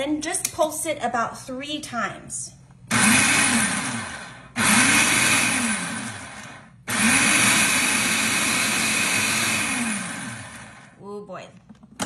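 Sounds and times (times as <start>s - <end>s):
food processor motor whirring: 2.9s - 11.0s.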